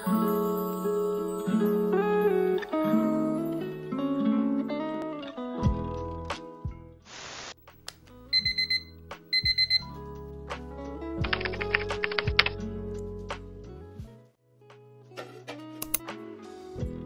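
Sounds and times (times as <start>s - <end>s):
soft background music: 0.0s - 7.0s, 7.6s - 17.0s
electronic alarm beeping: 8.3s - 9.9s.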